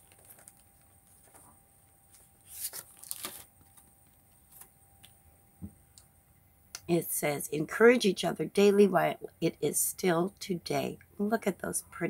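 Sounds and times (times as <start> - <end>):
plastic and card rustling: 0.0 - 5.2.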